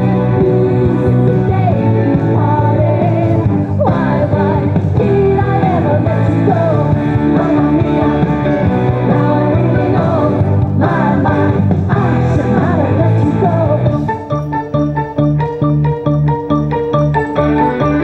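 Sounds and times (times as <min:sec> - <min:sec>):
song with sung melody: 0:00.0 - 0:18.0.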